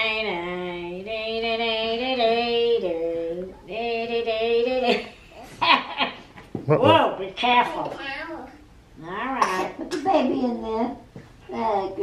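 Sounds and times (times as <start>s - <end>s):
woman singing wordless notes: 0.0s - 5.1s.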